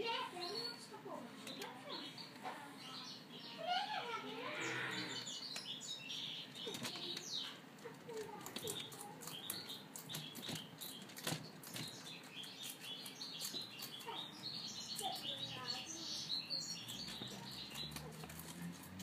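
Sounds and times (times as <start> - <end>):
rabbit chewing crisp crunching: 6.5 - 19.0.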